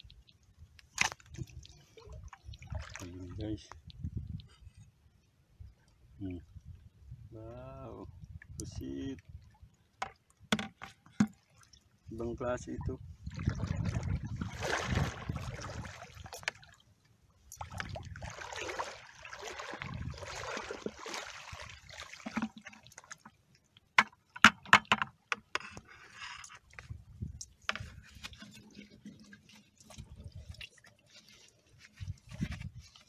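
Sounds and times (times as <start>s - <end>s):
water splashing and sloshing: 0.0s - 33.0s
sharp clicks and knocks: 24.0s - 25.9s.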